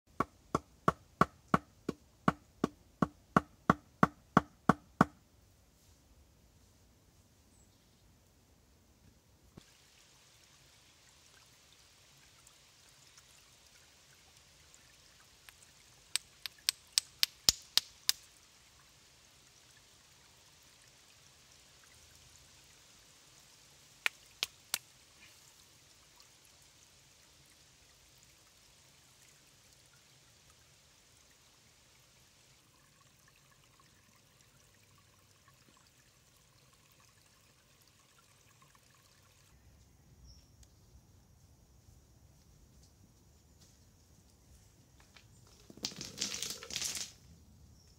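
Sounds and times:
stream trickling over stones: 0:09.6 - 0:39.6, 0:45.1 - 0:47.9.

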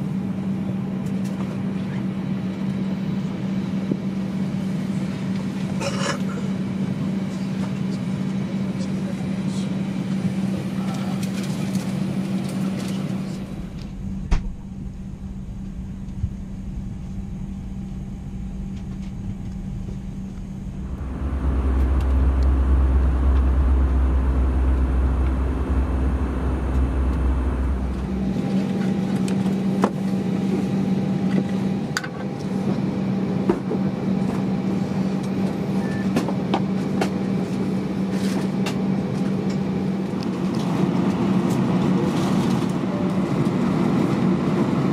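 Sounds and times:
aircraft cabin hum: 0:00.0 - 0:44.9
deep rumble: 0:11.0 - 0:35.6.

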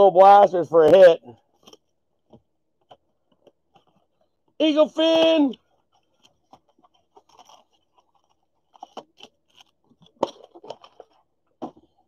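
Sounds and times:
packaging crinkling and rustling: 0:05.6 - 0:12.0.

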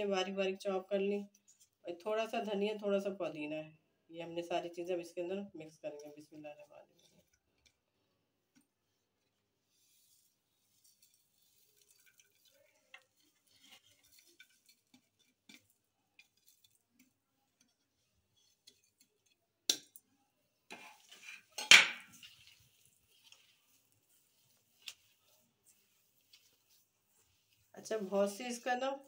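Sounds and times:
spices scraped into bowl: 0:09.5 - 0:19.4, 0:20.7 - 0:29.0.

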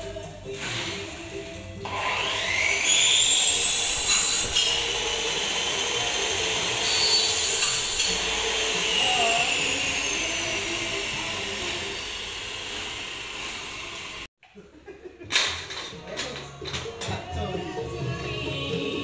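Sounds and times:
power tool whining: 0:00.5 - 0:14.3.

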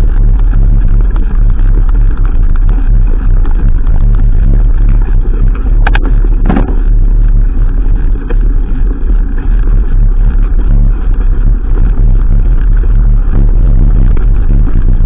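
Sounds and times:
wind and tyre noise rumble: 0:00.0 - 0:15.0
bike rattling over stones: 0:04.9 - 0:14.2.

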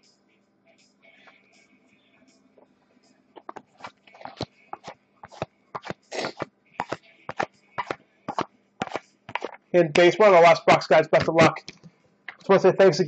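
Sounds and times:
trading cards flipped by hand: 0:03.4 - 0:09.6.

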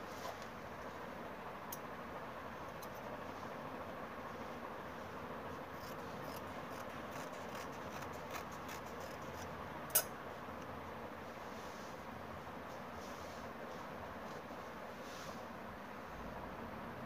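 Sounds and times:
scissors snipping fabric: 0:05.7 - 0:10.1.

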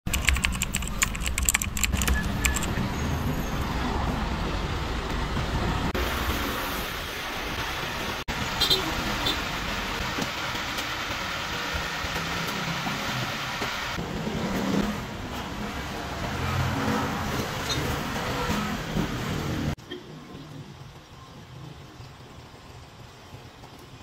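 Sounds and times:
sharp clicks: 0:00.1 - 0:02.8
road traffic rumble: 0:00.1 - 0:24.0.

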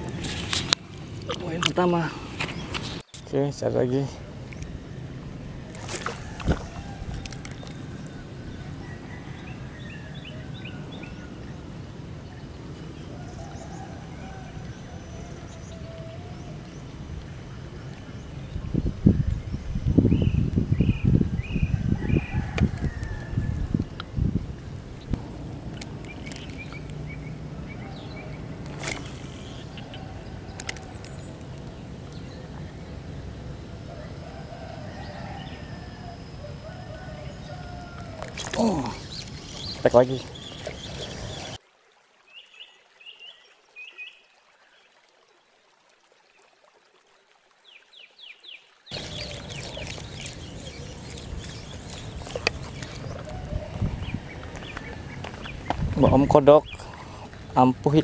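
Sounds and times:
insect chirps: 0:01.6 - 0:41.6, 0:48.9 - 0:58.0
fishing gear swish: 0:05.7 - 0:06.8
fishing gear clicks: 0:05.7 - 0:07.8, 0:25.7 - 0:27.0, 0:30.5 - 0:31.2, 0:38.2 - 0:39.8.

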